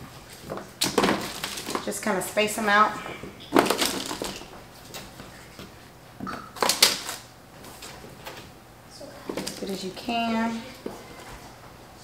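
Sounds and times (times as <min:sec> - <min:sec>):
potato wedges rustling and tapping: 0:00.0 - 0:08.5, 0:09.2 - 0:11.4.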